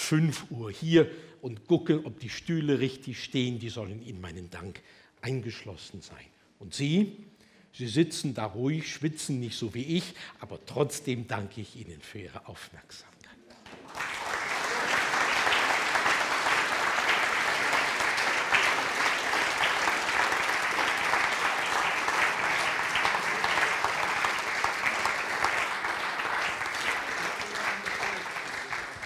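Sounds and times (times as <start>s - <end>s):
audience applauding: 13.6s - 29.0s.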